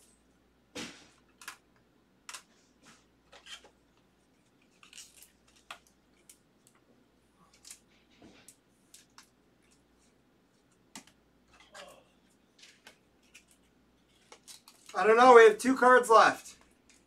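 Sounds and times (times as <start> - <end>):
plastic sleeve crinkling and clicks: 3.3 - 6.8, 12.6 - 15.0.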